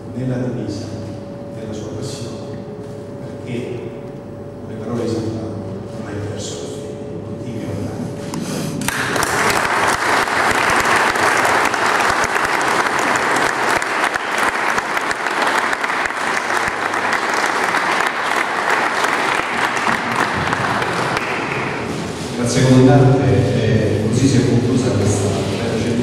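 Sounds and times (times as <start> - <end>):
audience applauding: 8.8 - 22.3.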